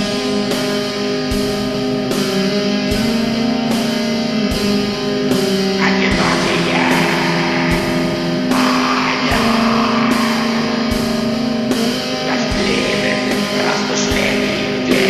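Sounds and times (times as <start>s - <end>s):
sustained guitar chords: 0.0s - 15.0s
slow drum beat: 5.8s - 15.0s.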